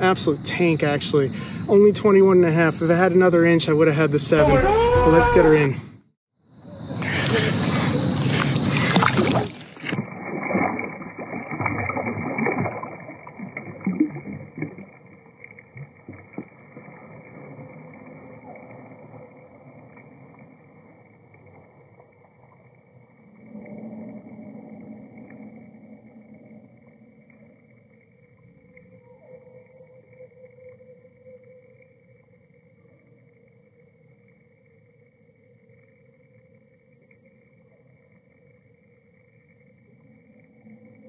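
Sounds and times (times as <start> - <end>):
low hum: 6.5 - 41.0
water splashing and sloshing: 6.8 - 23.9
water gurgles and drips: 6.8 - 29.8.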